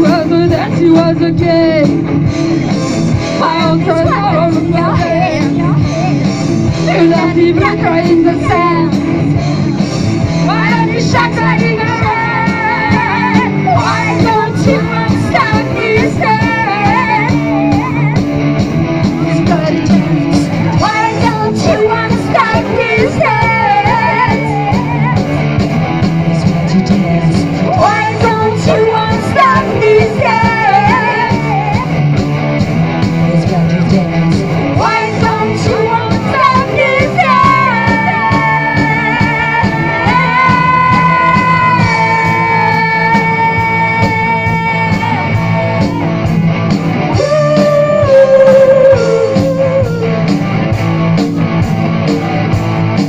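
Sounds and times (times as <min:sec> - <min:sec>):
person singing: 0:00.0 - 0:02.1, 0:03.3 - 0:06.2, 0:06.8 - 0:09.2, 0:10.4 - 0:18.4, 0:19.2 - 0:25.4, 0:26.2 - 0:32.0, 0:33.3 - 0:46.2, 0:47.1 - 0:50.3
drums: 0:00.0 - 0:53.0
electric guitars: 0:00.0 - 0:53.0.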